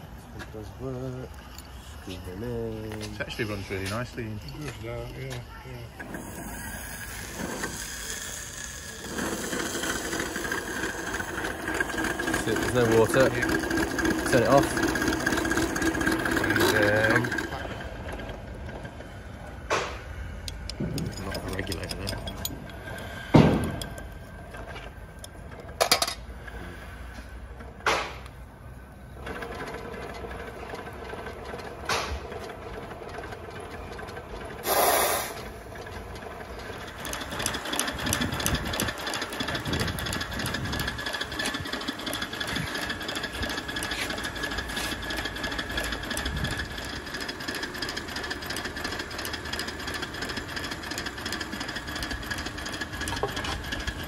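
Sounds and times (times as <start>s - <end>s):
steam locomotive wheels spinning: 0.8s - 54.0s
steam hiss: 34.6s - 35.4s.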